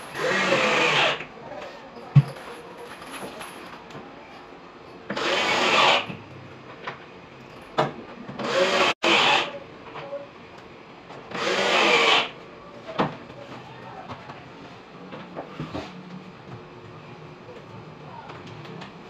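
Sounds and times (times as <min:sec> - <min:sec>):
power drill running: 0:00.0 - 0:01.3, 0:05.1 - 0:06.1, 0:08.4 - 0:09.5, 0:11.3 - 0:12.3.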